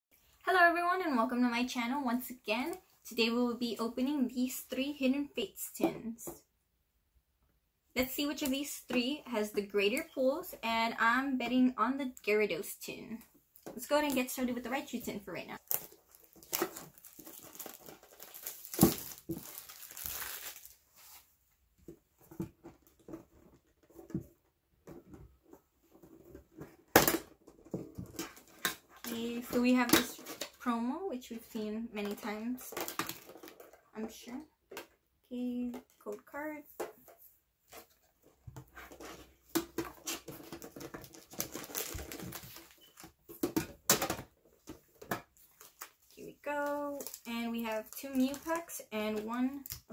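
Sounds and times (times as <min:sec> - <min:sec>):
plastic wrap crinkling and tearing: 0:15.6 - 0:21.2, 0:40.0 - 0:43.1, 0:45.4 - 0:48.8.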